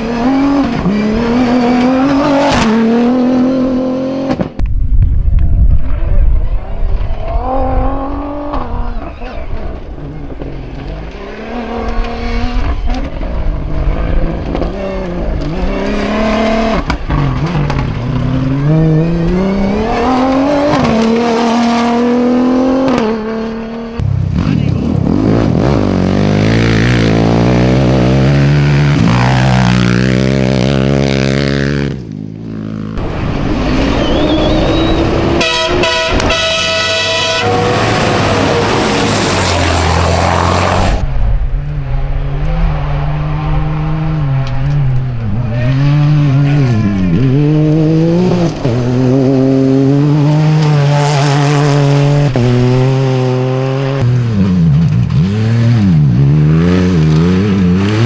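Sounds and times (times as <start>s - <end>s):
race truck engine: 5.8s - 58.0s
quad bike engine revving: 7.3s - 9.4s, 13.8s - 41.0s, 45.6s - 58.0s
car passing: 32.5s - 58.0s.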